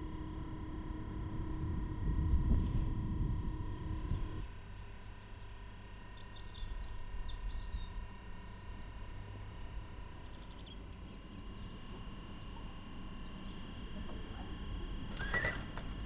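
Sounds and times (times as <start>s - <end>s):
low outdoor rumble: 0.0s - 4.5s
songbirds chirping and trilling: 0.1s - 4.9s, 6.0s - 13.8s.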